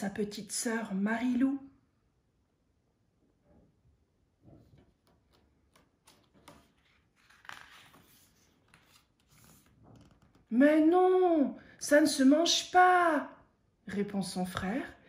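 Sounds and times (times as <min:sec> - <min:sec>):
book page turning: 0:04.6 - 0:10.5.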